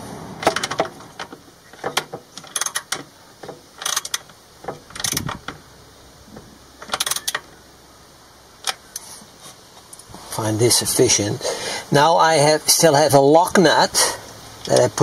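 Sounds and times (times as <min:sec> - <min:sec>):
ratchet wrench clicking: 0:02.4 - 0:03.1, 0:03.8 - 0:05.6, 0:06.8 - 0:07.5.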